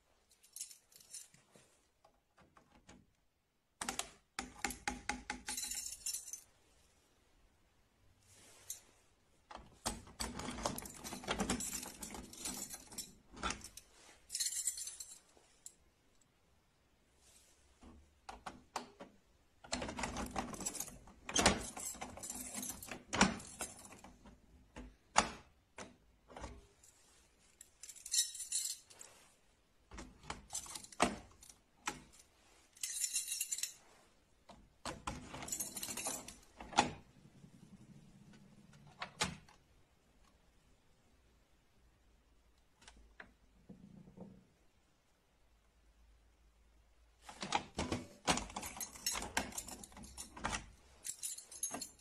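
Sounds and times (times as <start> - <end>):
key scraping and rattling in lock: 0.3 - 1.4, 3.8 - 6.5, 9.6 - 15.7, 17.9 - 29.2, 29.9 - 34.0, 34.8 - 37.1, 47.3 - 52.0.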